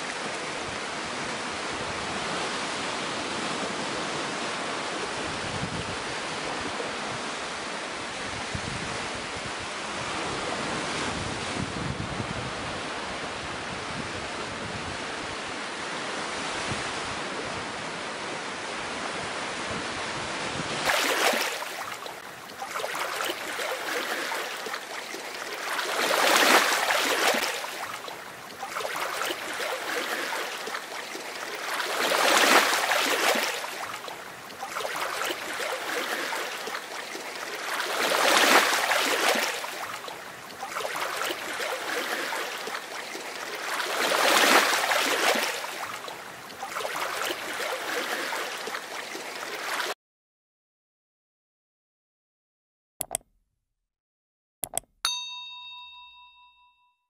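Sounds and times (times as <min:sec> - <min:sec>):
water washing on beach: 0:00.0 - 0:50.0
ocean waves breaking: 0:20.1 - 0:50.0.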